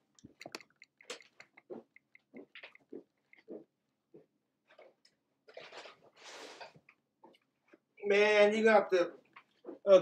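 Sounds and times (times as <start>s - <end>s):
soft footsteps: 0.1s - 6.0s, 9.0s - 10.0s.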